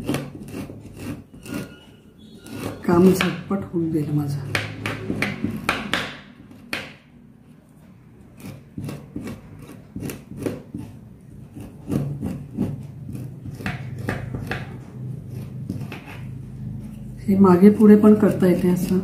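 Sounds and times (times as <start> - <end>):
metal blade scraping orange peel: 0.0 - 3.4, 8.3 - 19.0.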